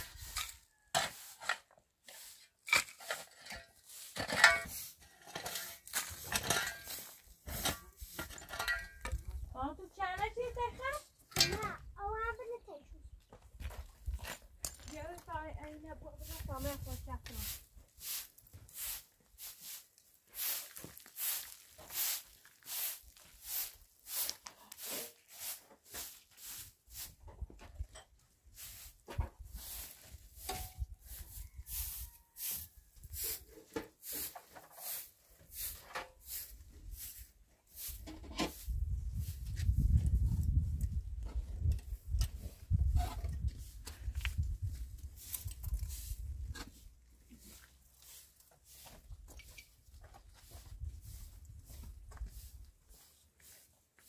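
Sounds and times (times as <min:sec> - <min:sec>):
shovel scraping gravelly earth: 0:00.0 - 0:09.5, 0:16.1 - 0:27.4, 0:28.4 - 0:49.8
footsteps scuffing on gritty floor: 0:16.3 - 0:26.8, 0:42.8 - 0:54.0.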